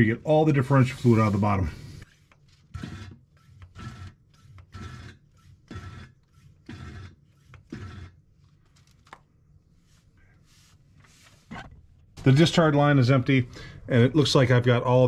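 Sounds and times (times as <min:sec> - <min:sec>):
vacuum pump strokes: 0:00.6 - 0:08.5.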